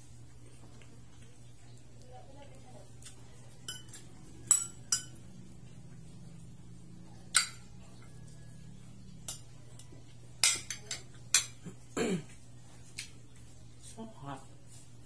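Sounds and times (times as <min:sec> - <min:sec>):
cutlery clinking on ceramic plate: 0:03.6 - 0:05.2.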